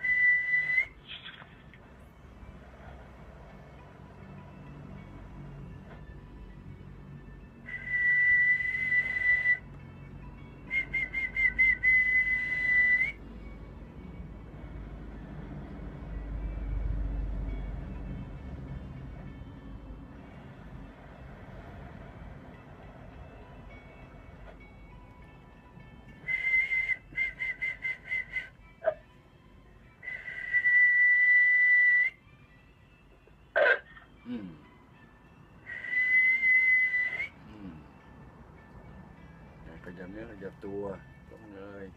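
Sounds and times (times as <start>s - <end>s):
man whistling: 0.0s - 1.0s, 7.6s - 9.7s, 10.7s - 13.2s, 26.2s - 28.7s, 30.0s - 32.2s, 35.6s - 37.8s.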